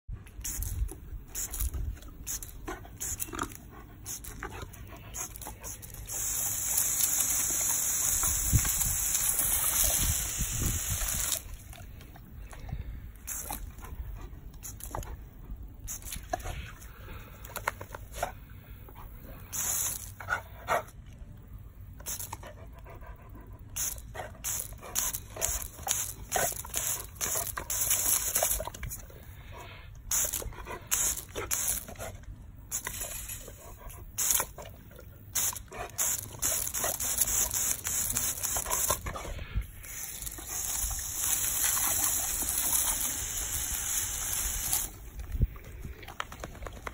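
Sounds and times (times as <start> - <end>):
hose spray hissing: 5.2 - 11.6, 19.4 - 20.2, 30.1 - 32.0, 35.3 - 45.0.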